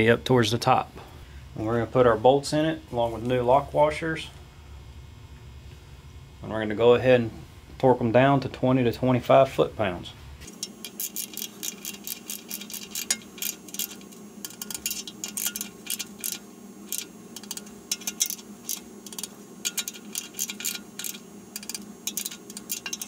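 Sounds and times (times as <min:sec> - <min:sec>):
socket ratchet clicking: 0:10.6 - 0:23.0.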